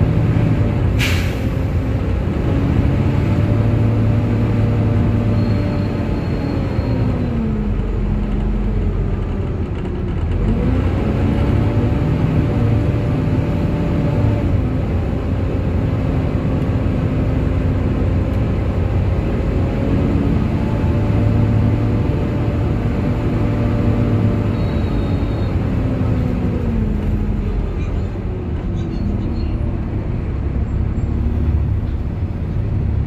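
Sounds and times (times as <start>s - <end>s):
bus diesel engine rumbling: 0.0s - 33.0s.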